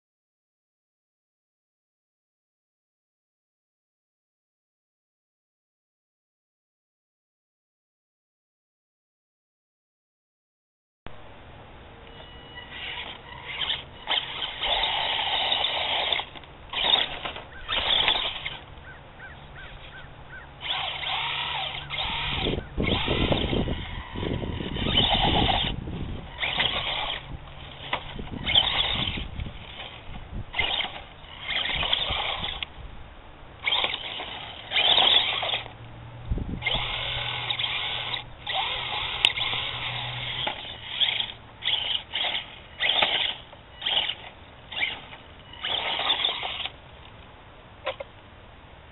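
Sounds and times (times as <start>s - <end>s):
toy truck motor whining: 12.0s - 32.8s, 33.6s - 35.8s, 36.5s - 47.2s, 47.8s - 48.2s.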